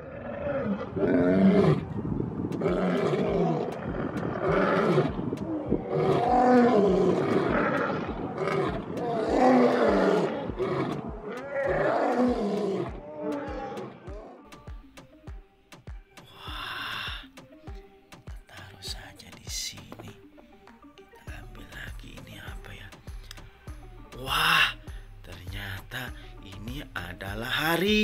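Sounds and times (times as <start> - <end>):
lions roaring: 0.0 - 2.0, 2.6 - 14.4.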